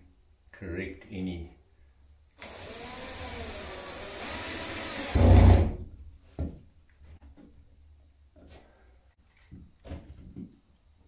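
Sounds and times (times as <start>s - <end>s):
cordless drill driving screw: 2.4s - 5.6s.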